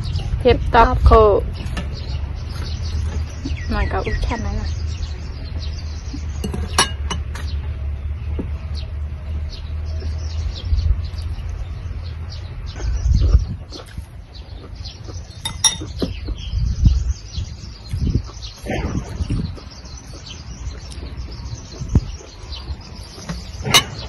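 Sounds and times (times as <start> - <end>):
birds chirping: 0.0 - 24.0
low rumble: 0.0 - 24.0
spoon clinking glass bowl: 15.4 - 15.9.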